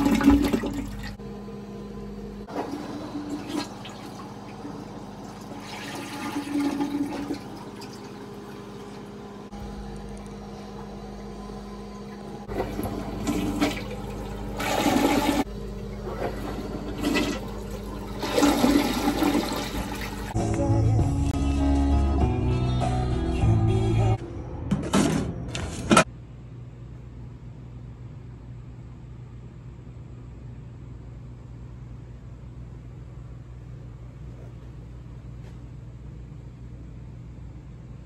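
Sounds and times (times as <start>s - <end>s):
toilet flushing: 0.0s - 1.2s, 2.4s - 9.5s, 10.4s - 20.4s
steady low hum: 0.0s - 21.3s.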